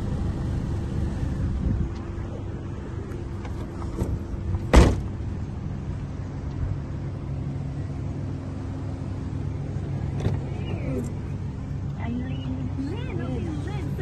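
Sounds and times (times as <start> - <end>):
low hum: 0.0 - 14.0
tailgate slamming shut: 3.6 - 5.2.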